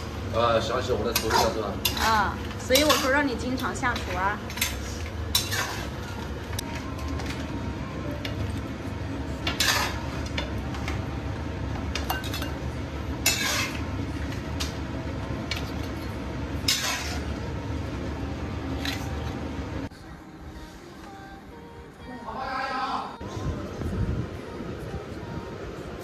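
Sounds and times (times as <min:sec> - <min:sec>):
steady low hum: 0:00.0 - 0:22.3, 0:23.0 - 0:26.0
metal spatula scraping wok: 0:00.9 - 0:06.2, 0:09.4 - 0:11.0, 0:13.1 - 0:14.0, 0:16.6 - 0:17.4.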